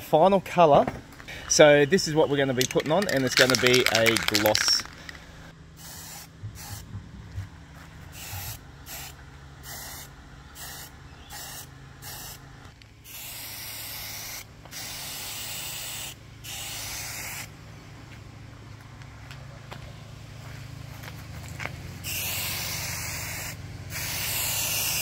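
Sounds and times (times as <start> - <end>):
spray can hissing: 2.6 - 5.1, 5.8 - 6.9, 8.2 - 12.4, 13.1 - 17.5, 22.0 - 25.0.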